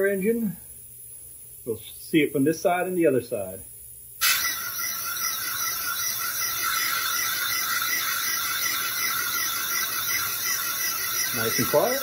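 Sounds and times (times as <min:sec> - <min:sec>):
compressed air hissing: 0:04.2 - 0:05.3.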